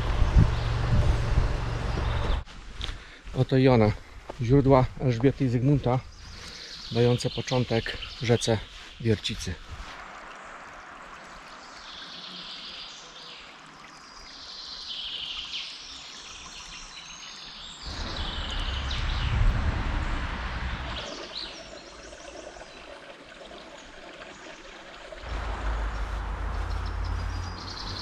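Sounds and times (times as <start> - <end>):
low rumble: 0.0 - 2.4, 17.9 - 21.2, 25.3 - 28.0
songbirds calling: 1.7 - 2.5, 5.1 - 9.6, 10.2 - 19.4, 20.7 - 23.0, 25.7 - 28.0
stream trickling over stones: 4.3 - 28.0.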